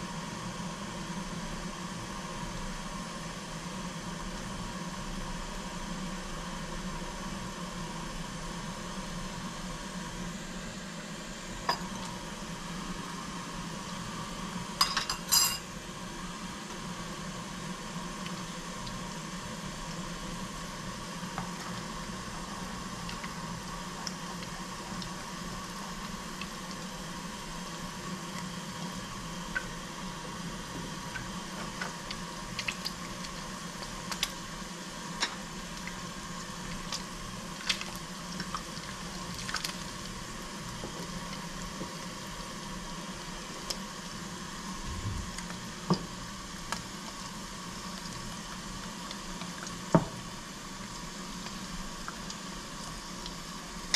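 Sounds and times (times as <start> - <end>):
kitchen hum: 6.8 - 53.9
metal utensils clinking: 14.8 - 15.6.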